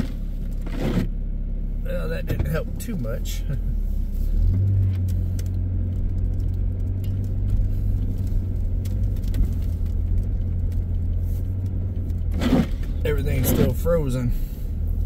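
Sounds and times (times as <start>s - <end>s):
car engine and tyre rumble: 0.0s - 15.0s
light ticks: 4.6s - 12.2s.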